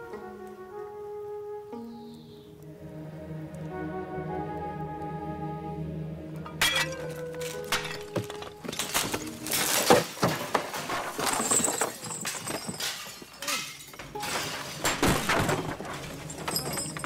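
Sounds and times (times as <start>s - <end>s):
objects crashing and clattering: 6.6s - 17.0s.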